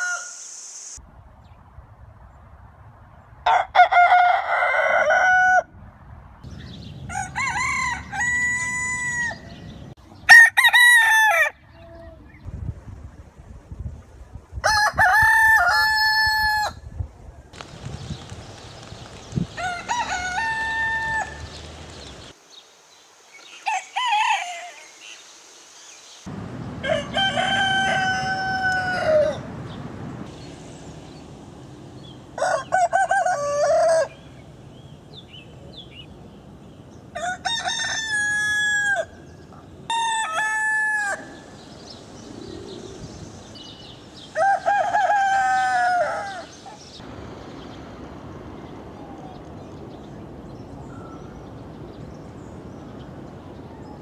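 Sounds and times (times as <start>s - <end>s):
roosters crowing: 0.0s - 0.4s, 3.5s - 5.7s, 6.8s - 11.7s, 14.6s - 16.8s, 19.5s - 22.3s, 23.6s - 24.9s, 26.6s - 29.7s, 32.0s - 34.4s, 37.1s - 41.7s, 43.6s - 46.8s.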